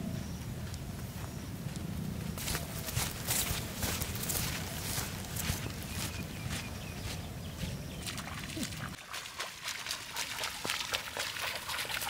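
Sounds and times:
barefoot footsteps on dry earth: 0.0s - 12.0s
footsteps splashing in shallow water: 2.4s - 12.0s.

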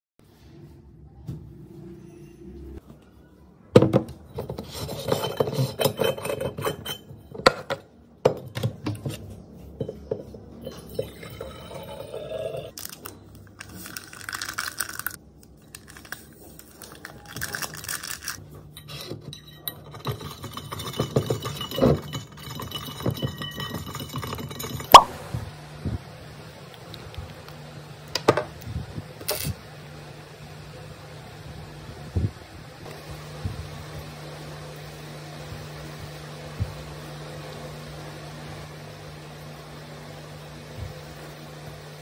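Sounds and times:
metal bottle clinking and scraping: 4.3s - 7.8s, 9.8s - 12.8s, 17.2s - 25.1s.

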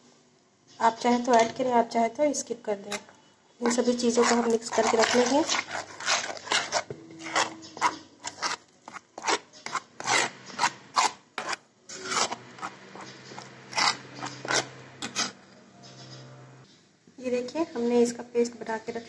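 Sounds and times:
metal spoon scraping plastic bowl: 2.8s - 15.4s.

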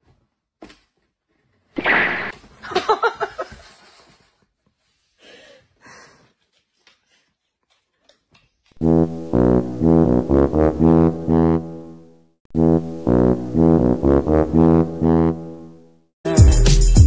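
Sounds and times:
woman laughing breathily: 5.2s - 6.3s
woman gasping: 5.2s - 6.4s.

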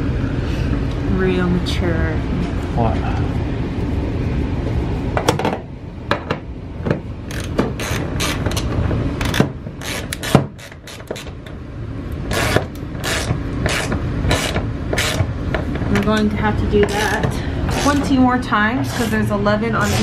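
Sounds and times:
low steady hum: 0.0s - 20.0s
ratchet wrench clicking: 9.2s - 11.3s, 12.3s - 15.2s.

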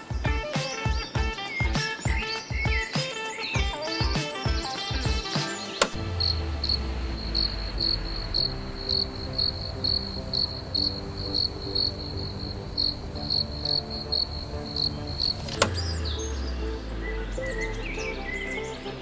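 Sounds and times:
soft sustained music chords: 0.0s - 19.0s
cricket chirping: 6.0s - 15.9s.

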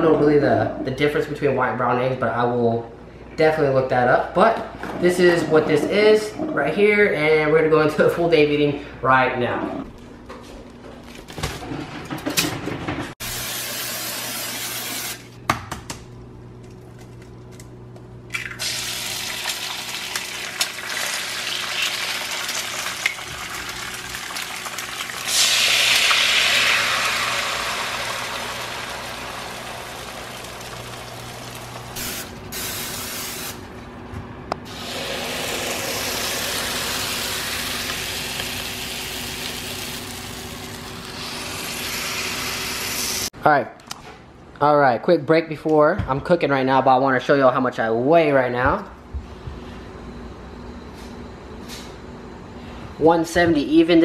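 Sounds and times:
eggs sizzling in a frying pan: 18.8s - 32.0s, 34.7s - 43.3s.

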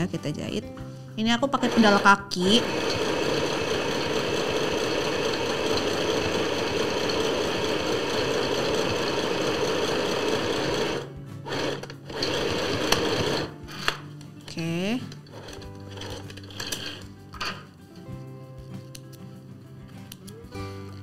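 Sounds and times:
sewing machine stitching: 1.6s - 13.5s, 15.2s - 17.1s.

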